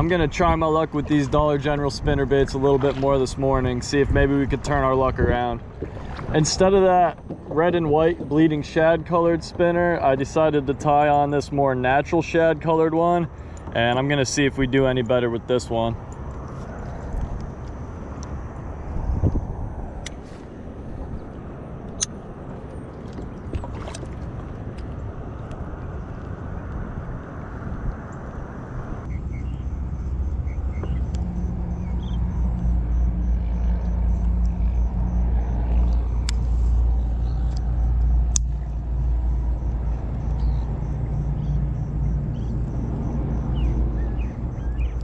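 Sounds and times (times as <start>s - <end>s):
low engine rumble: 0.0s - 45.0s
sharp clicks: 37.4s - 38.7s.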